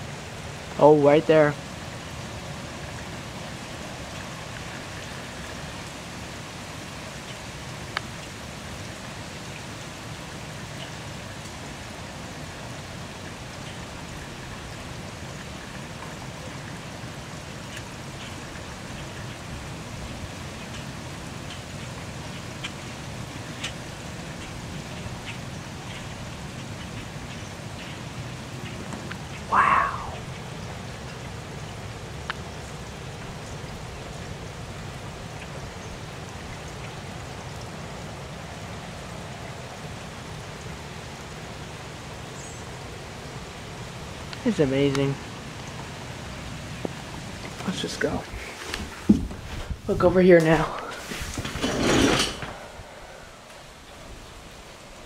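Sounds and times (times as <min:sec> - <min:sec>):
heavy rain falling: 0:00.0 - 0:55.0
wind rumble on microphone: 0:48.2 - 0:55.0.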